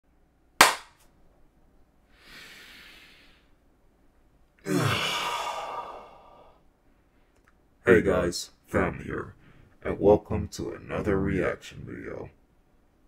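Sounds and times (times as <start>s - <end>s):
man breathing: 2.1s - 3.6s, 4.6s - 7.4s, 9.4s - 9.8s
man sighing loudly: 4.6s - 6.6s.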